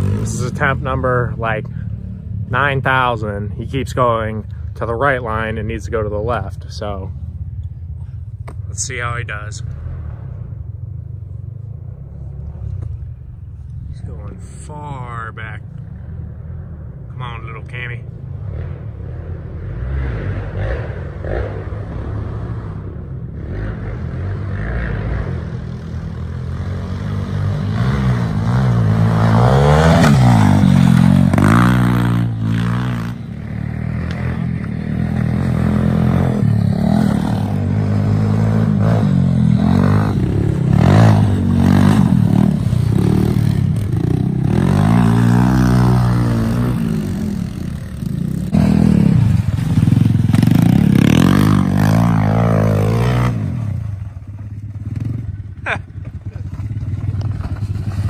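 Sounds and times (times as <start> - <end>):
small motorbike engines revving: 0.0 - 3.0, 17.2 - 58.0.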